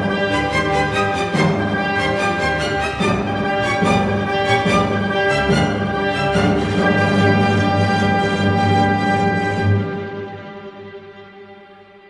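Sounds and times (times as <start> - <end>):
orchestral music with bowed strings: 0.0 - 12.0.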